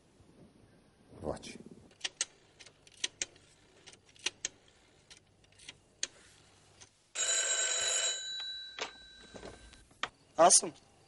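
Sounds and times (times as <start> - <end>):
telephone bell ringing: 7.2 - 9.8.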